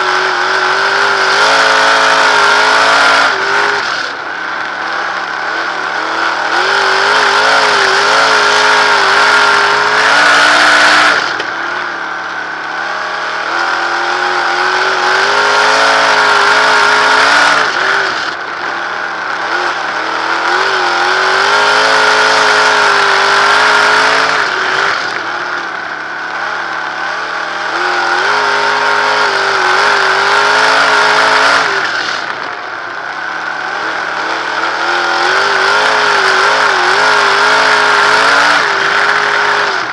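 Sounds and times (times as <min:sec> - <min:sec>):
racing car engine: 0:00.0 - 0:39.9.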